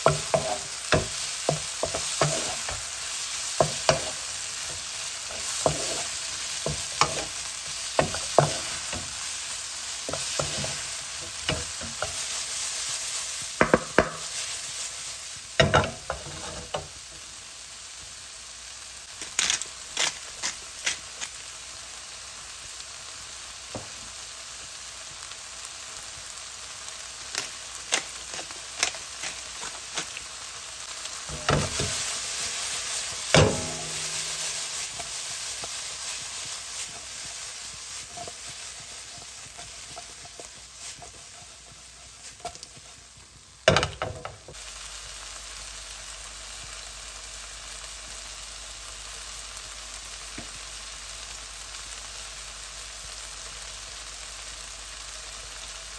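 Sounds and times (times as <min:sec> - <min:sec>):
wok knocking and scraping: 0:00.0 - 0:17.2, 0:27.3 - 0:30.3, 0:31.0 - 0:44.6
vegetables sizzling in a wok: 0:00.0 - 0:55.9.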